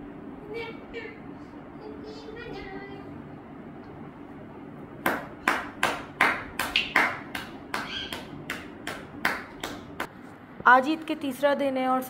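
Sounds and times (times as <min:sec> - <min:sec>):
sharp claps: 0:05.0 - 0:10.1.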